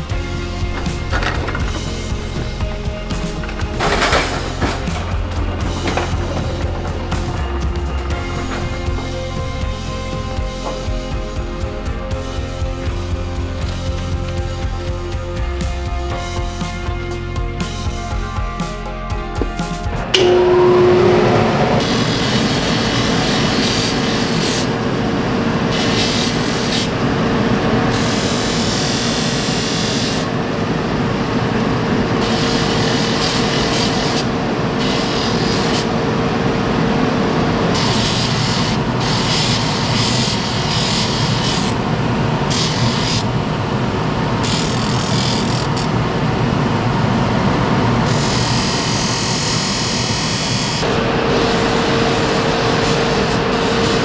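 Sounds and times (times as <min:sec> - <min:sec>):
grinding wheel humming: 0:00.0 - 0:11.9
blade rasping on grinder: 0:37.7 - 0:41.8.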